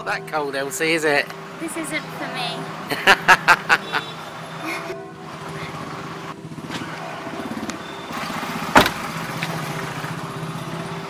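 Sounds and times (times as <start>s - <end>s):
car engine idling: 4.9s - 11.0s
car door slamming: 8.7s - 9.5s.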